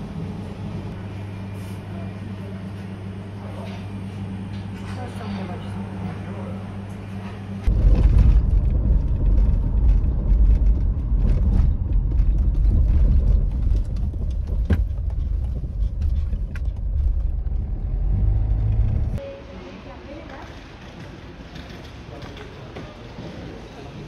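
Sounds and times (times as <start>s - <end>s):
car road and engine rumble: 7.6s - 19.2s
car knocks and rattles: 7.7s - 19.2s.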